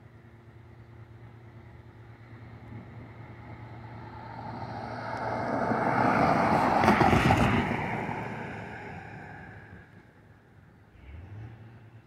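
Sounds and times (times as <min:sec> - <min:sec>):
vehicle passing by: 0:02.2 - 0:10.0.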